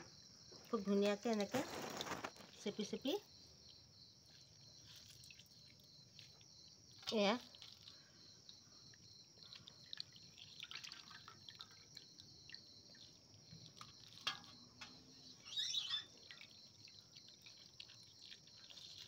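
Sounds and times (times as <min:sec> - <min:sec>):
rustle: 0:01.3 - 0:02.7
water dripping and splashing: 0:04.3 - 0:19.0.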